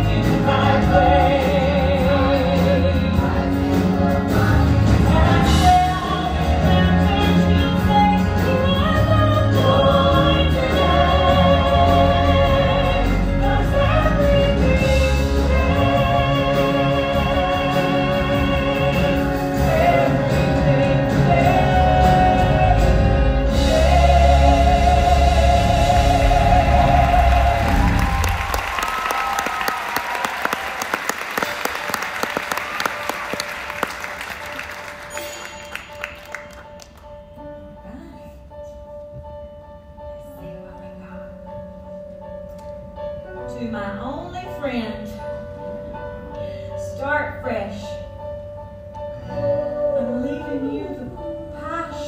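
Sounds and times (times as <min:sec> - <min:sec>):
high voice singing with vibrato: 0:00.0 - 0:28.5, 0:49.2 - 0:52.0
ensemble voices singing: 0:00.0 - 0:28.9, 0:49.2 - 0:51.3
pit orchestra: 0:00.0 - 0:52.0.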